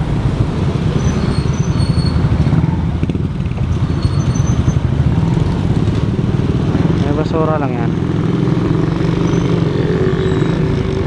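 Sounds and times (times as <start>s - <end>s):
motorcycle engine rumbling: 0.0s - 11.0s
short high-pitched squeaks: 1.0s - 2.3s, 3.8s - 4.8s.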